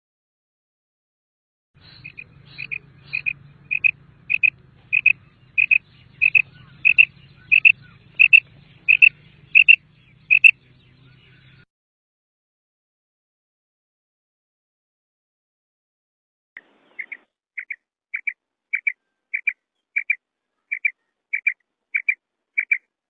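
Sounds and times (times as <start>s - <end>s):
quail calling: 1.8s - 11.6s, 16.6s - 22.9s.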